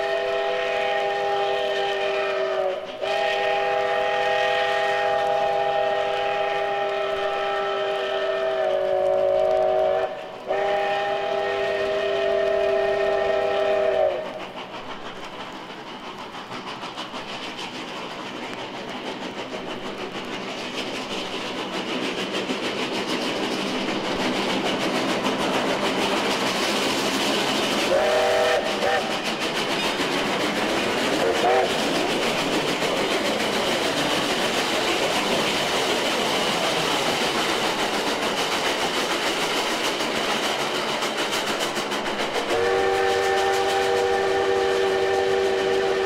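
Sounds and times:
steam locomotive chime whistle: 0.0s - 14.4s, 27.9s - 29.1s, 31.2s - 31.8s, 42.4s - 46.0s
train running noise: 0.0s - 46.0s.

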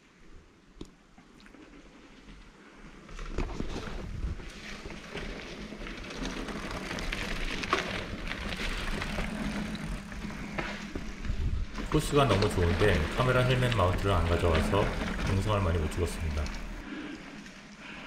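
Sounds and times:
bike rattling: 1.5s - 17.7s
tyres crunching over stones: 3.2s - 16.8s.

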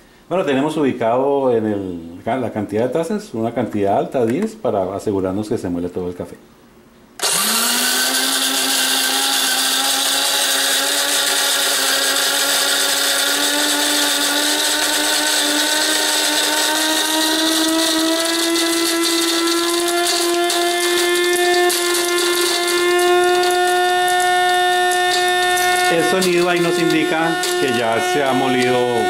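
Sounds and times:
coffee grinder motor whining: 7.2s - 29.0s.

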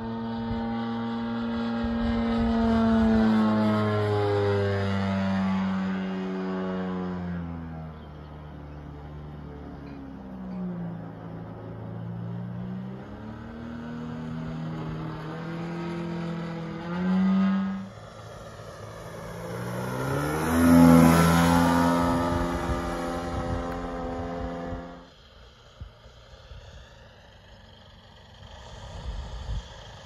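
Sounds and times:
model plane engine in flight: 0.0s - 30.0s.

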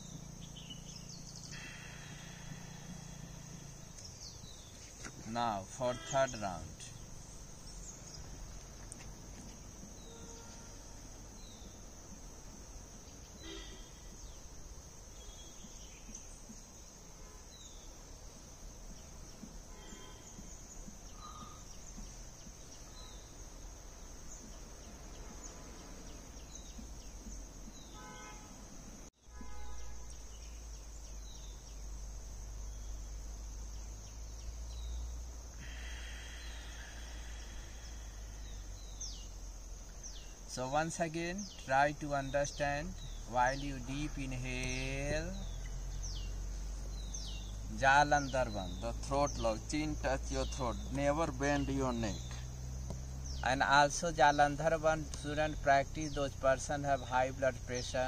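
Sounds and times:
high-pitched insect drone: 0.0s - 8.5s, 33.8s - 42.3s
bird chirps: 0.0s - 11.9s, 13.0s - 18.0s, 18.9s - 28.4s, 32.6s - 58.0s.

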